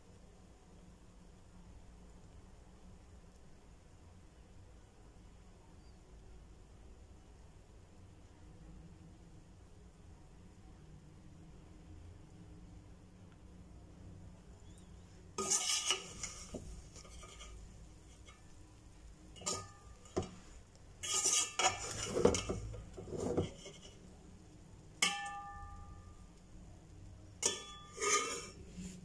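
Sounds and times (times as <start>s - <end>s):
metal skimmer scraping pot: 15.4s - 18.5s, 19.3s - 24.2s, 25.0s - 26.0s, 27.4s - 29.0s.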